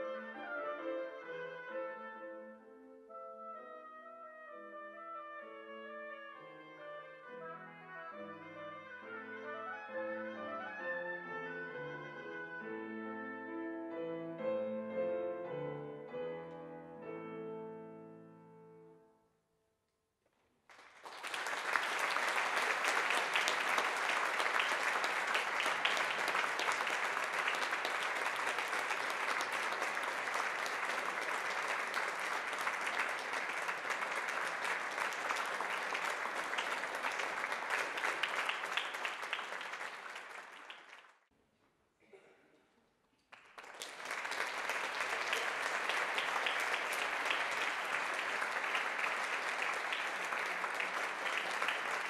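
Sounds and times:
music: 0:00.0 - 0:19.6
audience applauding: 0:20.7 - 0:41.2, 0:43.3 - 0:52.0.

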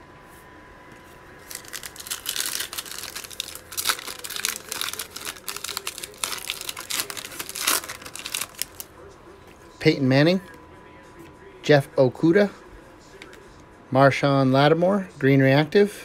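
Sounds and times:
foil wrapper crinkling and tearing: 0:01.4 - 0:08.9.

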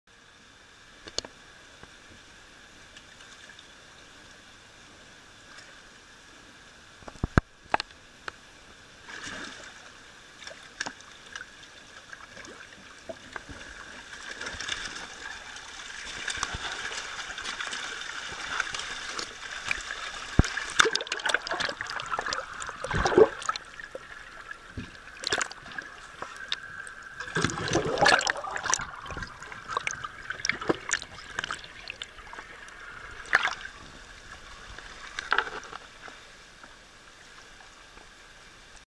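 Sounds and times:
trickling water: 0:07.0 - 0:38.8
fish splashing at water surface: 0:14.2 - 0:32.1.

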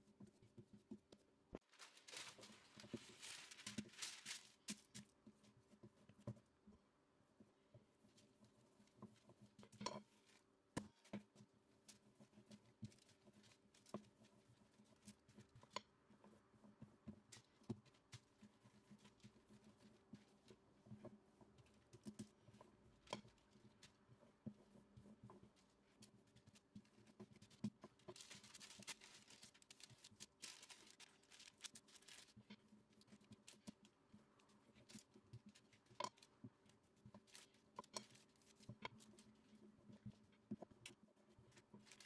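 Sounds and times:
plastic film rustling: 0:01.6 - 0:05.0, 0:28.0 - 0:32.5
rolling pin rolling dough: 0:05.2 - 0:28.9
hands tapping and rubbing: 0:07.4 - 0:42.0.

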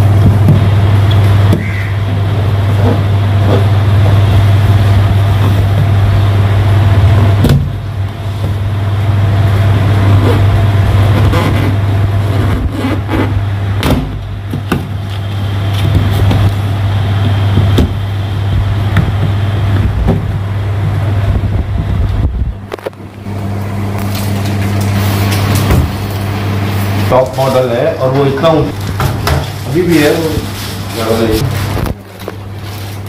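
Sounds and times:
low machine hum: 0:00.0 - 0:33.0.

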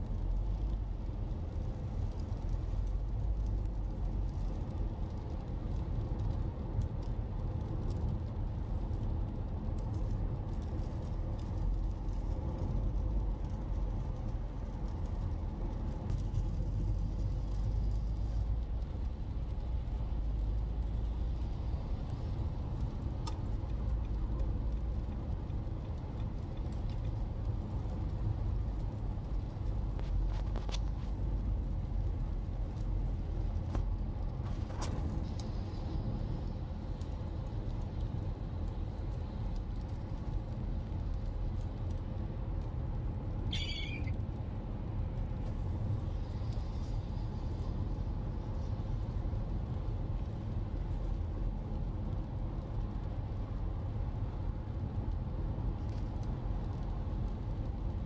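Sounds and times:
car road noise rumble: 0:00.0 - 0:58.0
faint ticks: 0:22.8 - 0:33.9.

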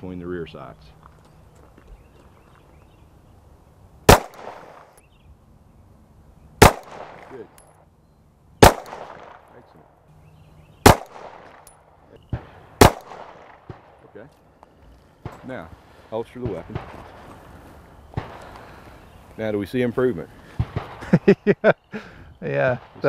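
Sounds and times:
pistol shots with echo: 0:04.1 - 0:05.0, 0:06.6 - 0:07.7, 0:08.6 - 0:09.6, 0:10.8 - 0:14.0.

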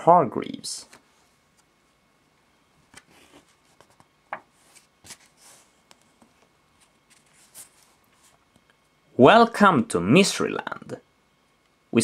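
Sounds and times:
book pages turning: 0:02.8 - 0:08.4.

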